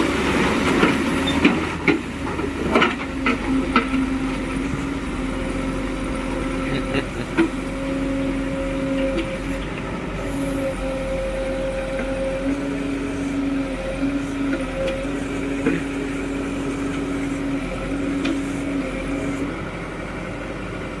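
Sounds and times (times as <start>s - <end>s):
diesel engine running: 0.0s - 21.0s
droning hydraulic tone: 3.4s - 19.6s.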